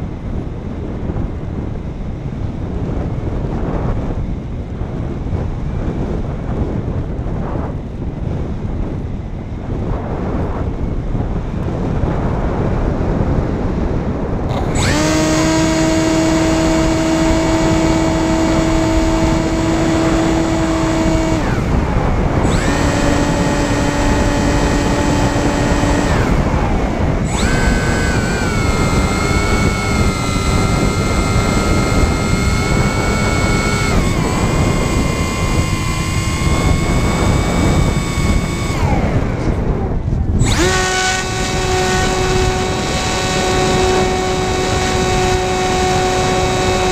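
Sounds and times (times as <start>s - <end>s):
rushing wind: 0.0s - 46.9s
model plane motor whining: 14.4s - 46.9s.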